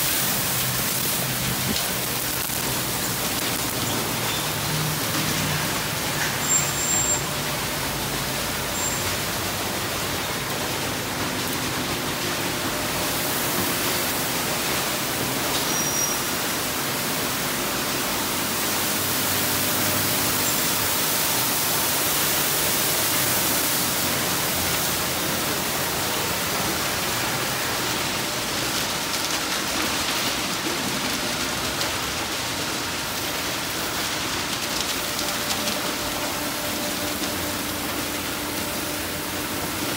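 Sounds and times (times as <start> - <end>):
water spray hissing: 0.0 - 10.3, 12.8 - 28.1.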